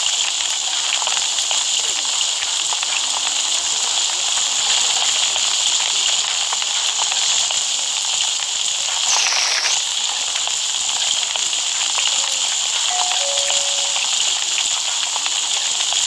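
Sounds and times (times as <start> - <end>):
loud steady hiss: 7.6 - 10.0
faint crackles: 8.8 - 10.1.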